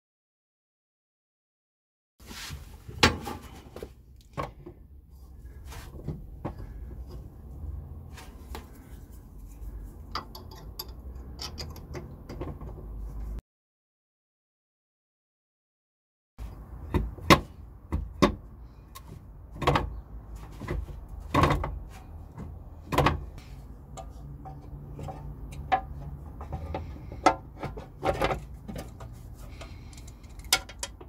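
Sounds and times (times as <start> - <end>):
metallic clicks and clanks: 10.1 - 12.7, 23.9 - 31.0.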